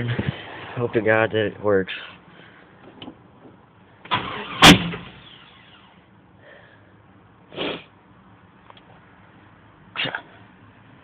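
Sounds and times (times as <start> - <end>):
engine idling hum: 0.0 - 11.0
engine cranking and starting: 4.0 - 5.9
engine backfire bang: 4.1 - 5.9.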